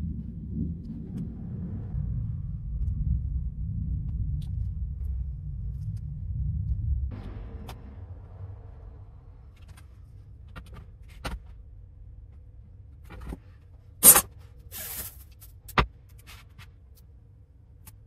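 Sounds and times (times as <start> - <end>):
short rasp: 14.0 - 14.2.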